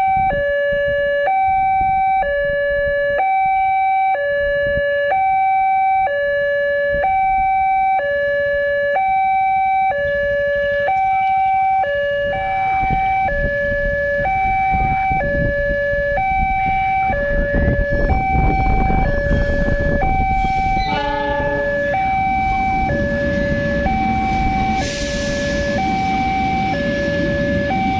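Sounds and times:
two-tone crossing alarm: 0.0s - 27.9s
train rumbling past: 16.5s - 27.9s
locomotive horn blast: 17.9s - 26.7s.

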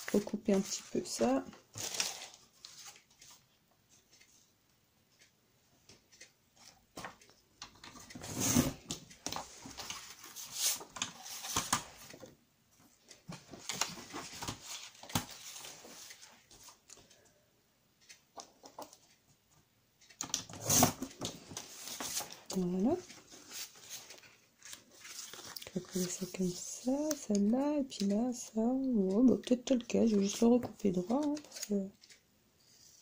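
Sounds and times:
paper being trimmed and handled: 30.2s - 31.8s.

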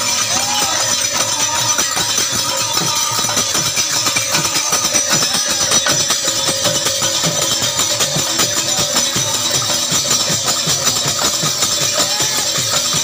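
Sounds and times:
barrel drum rhythm: 0.0s - 13.0s
small hand cymbals ringing: 0.0s - 13.0s.

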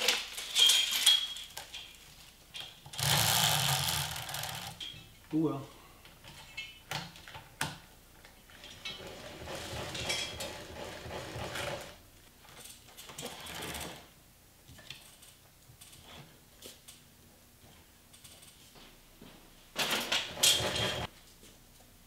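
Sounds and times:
plastic chain clicking and rattling: 2.9s - 4.8s.

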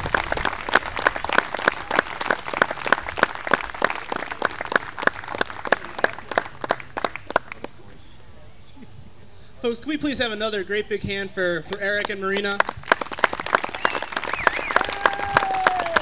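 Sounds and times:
audience applause: 0.0s - 7.6s, 12.6s - 16.0s.

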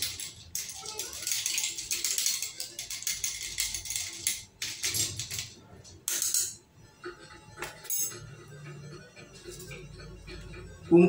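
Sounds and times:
spoon stirring ice in glass: 0.0s - 5.5s
background music: 0.0s - 11.0s.

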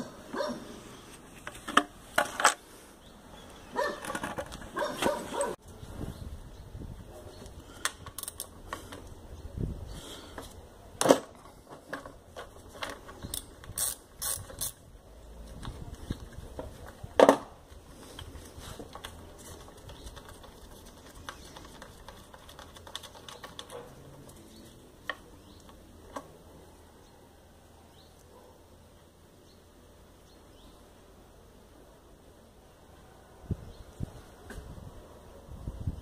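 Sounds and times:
ratchet wrench clicking: 13.3s - 14.8s.

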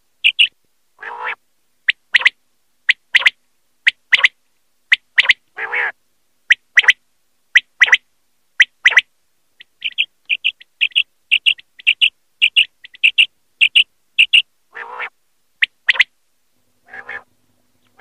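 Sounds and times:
quail calling: 0.2s - 7.0s, 7.6s - 8.0s, 8.6s - 16.1s, 16.8s - 17.3s
lower rough bird call: 9.8s - 15.2s, 16.8s - 17.3s.

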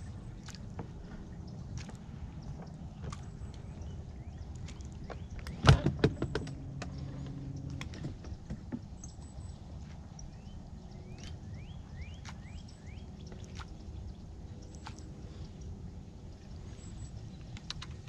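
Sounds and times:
low hum: 0.0s - 18.0s
water noise: 0.0s - 18.0s
wind: 0.0s - 18.0s
bird chirping: 2.3s - 18.0s
knocks against boat: 5.1s - 9.0s.

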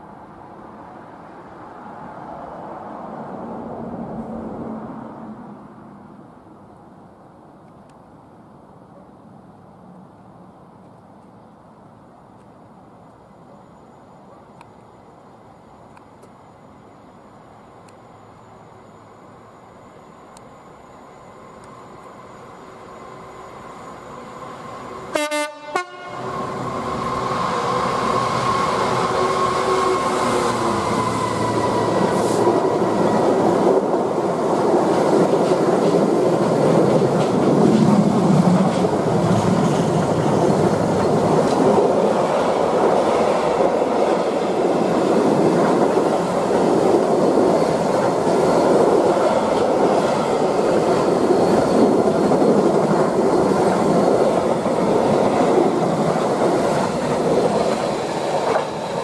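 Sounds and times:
diesel locomotive: 0.0s - 59.0s
train horn blast: 25.1s - 26.4s.

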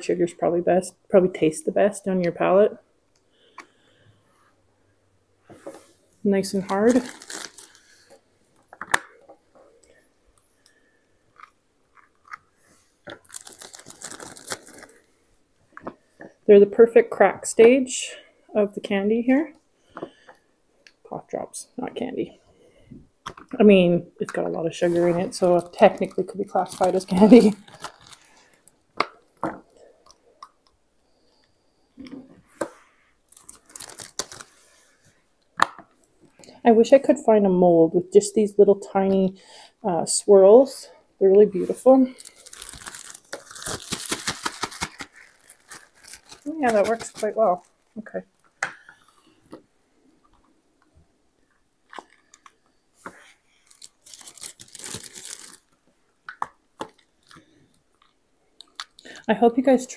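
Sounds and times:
rustling: 32.2s - 35.2s, 41.6s - 49.5s.

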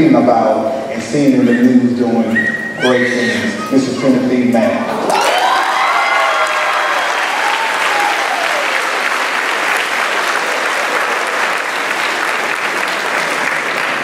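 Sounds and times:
person cheering: 2.8s - 8.8s
audience applauding: 4.9s - 14.0s.

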